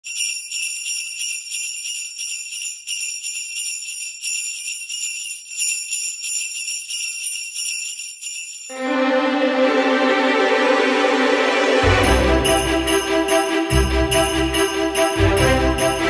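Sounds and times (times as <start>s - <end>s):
sleigh bells jingling: 0.0s - 9.8s, 10.9s - 16.0s
orchestral music: 8.7s - 16.0s.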